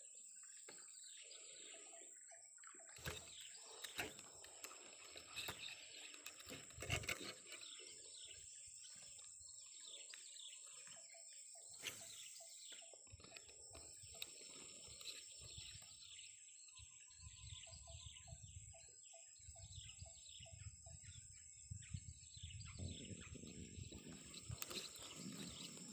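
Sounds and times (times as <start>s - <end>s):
faint birds chirping: 0.0s - 25.9s
fishing rod knocks and rustles: 3.0s - 7.9s.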